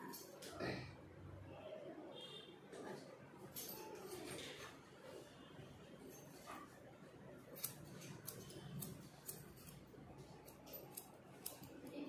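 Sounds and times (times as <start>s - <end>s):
scissors snipping hair: 7.6s - 12.0s.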